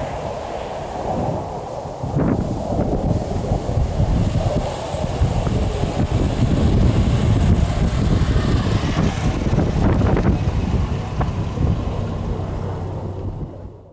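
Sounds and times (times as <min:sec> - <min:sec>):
wind buffeting microphone: 0:00.0 - 0:13.9
car driving past: 0:07.2 - 0:13.9.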